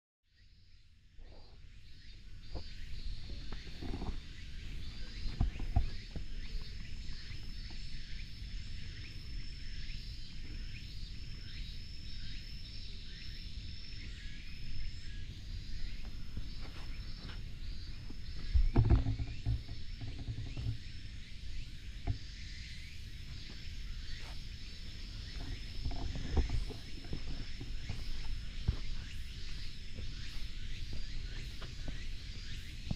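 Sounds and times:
wind rumble on microphone: 1.2 - 32.9
microphone handling noise: 2.5 - 7.8, 18.1 - 21.0, 25.3 - 32.9
footsteps on asphalt: 26.7 - 32.9.

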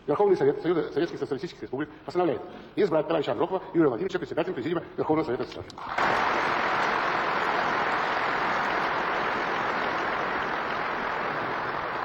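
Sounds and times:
large audience applauding: 5.8 - 12.0.

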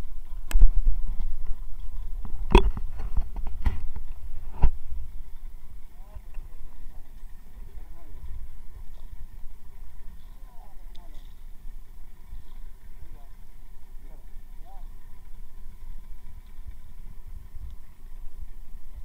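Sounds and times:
boat low rumbling: 0.0 - 19.0
faint voices: 5.8 - 17.5.

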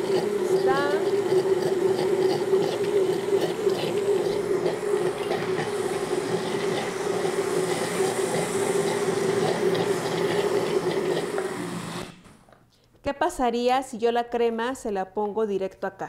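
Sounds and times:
blender running: 0.0 - 12.5.

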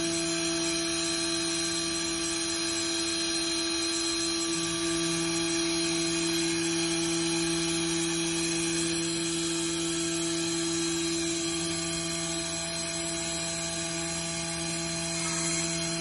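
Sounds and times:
cnc router whine: 0.0 - 16.0
low machine hum: 0.0 - 16.0.

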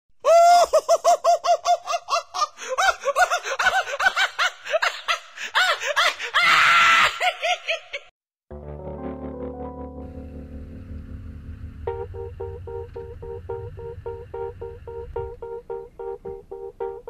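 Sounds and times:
person laughing high-pitched: 0.2 - 8.1
person shrieking: 5.6 - 7.4
music: 8.5 - 17.0.

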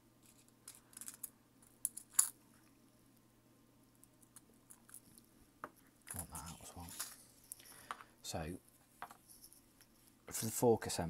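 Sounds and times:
faint low hum: 0.0 - 11.0
clicks and taps of small parts: 7.8 - 8.1.

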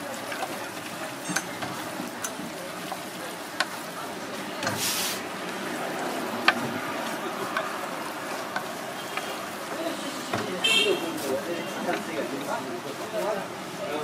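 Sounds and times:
chopsticks tapping on metal: 0.2 - 3.8, 6.4 - 6.6, 7.5 - 7.8, 8.4 - 9.4
brief hiss: 4.7 - 5.3.

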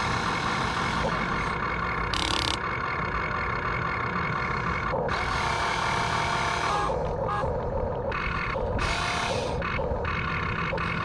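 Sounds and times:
electric gear motors whining: 2.1 - 2.8.

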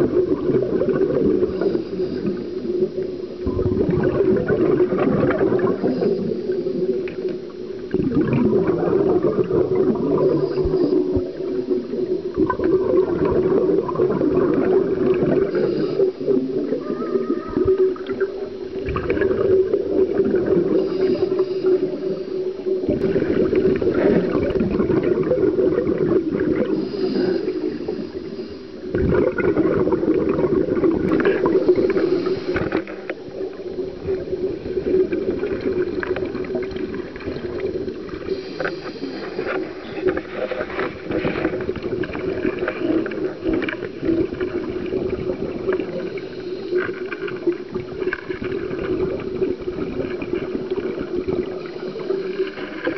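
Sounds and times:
exhaled bubbles: 0.0 - 52.9
underwater regulator breathing: 1.2 - 3.4, 9.8 - 12.0, 14.2 - 19.3, 20.2 - 24.6, 25.7 - 49.5.

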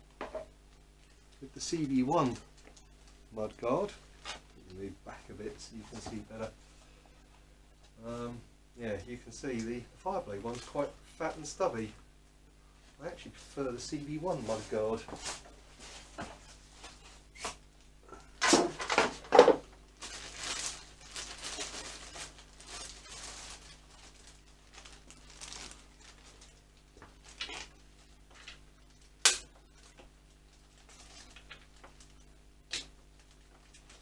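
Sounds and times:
faint steady hum: 0.0 - 34.0
handling knocks and rustling: 14.3 - 17.6.

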